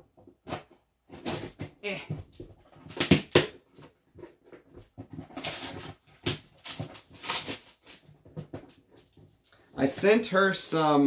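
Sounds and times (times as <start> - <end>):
cardboard crackles: 0.2 - 10.2
cardboard box rustling and scraping: 3.6 - 10.0.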